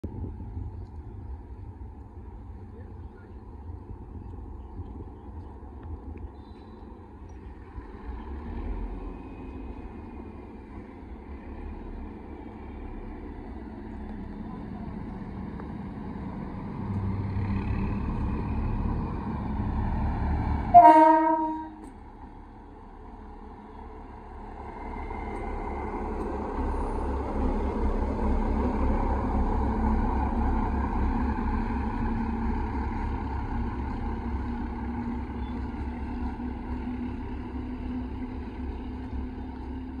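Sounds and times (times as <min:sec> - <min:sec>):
rail car engine rumble: 0:00.0 - 0:40.0
short horn blast: 0:20.7 - 0:21.9.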